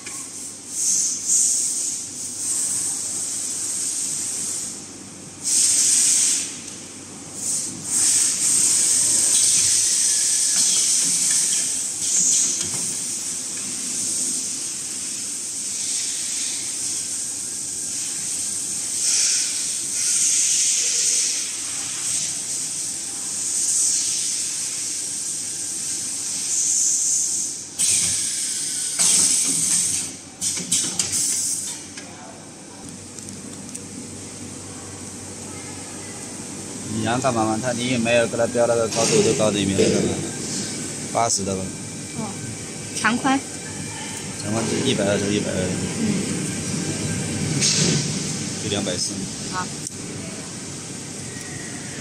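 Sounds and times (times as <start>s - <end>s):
packing machine high hiss: 0.0s - 6.6s, 7.3s - 31.8s, 36.9s - 42.3s.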